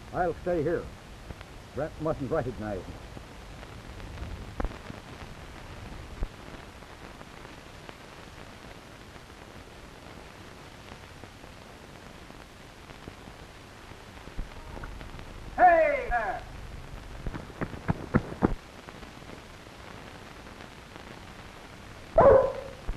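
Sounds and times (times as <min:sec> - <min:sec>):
film soundtrack hiss and crackle: 0:00.0 - 0:22.9.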